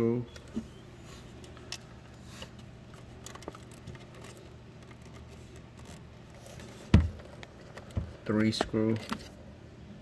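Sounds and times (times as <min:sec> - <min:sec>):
low steady hum: 0:00.0 - 0:10.0
faint clicks and scrapes: 0:00.4 - 0:08.0.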